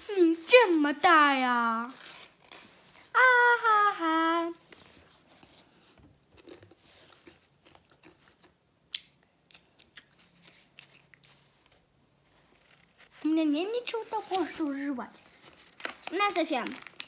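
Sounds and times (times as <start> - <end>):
girl's drawn-out vocal cry: 3.2 - 4.6.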